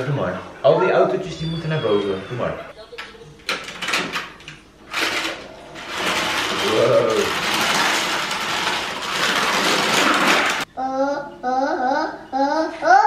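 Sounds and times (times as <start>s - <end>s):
toy car rattling down plastic ramp: 4.9s - 10.6s
child's vocal sound: 10.8s - 13.0s.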